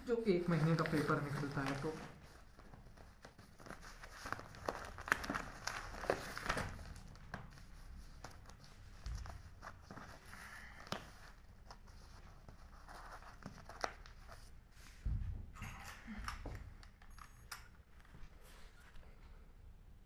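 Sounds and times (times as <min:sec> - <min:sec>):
newspapers rustling: 0:00.0 - 0:14.8.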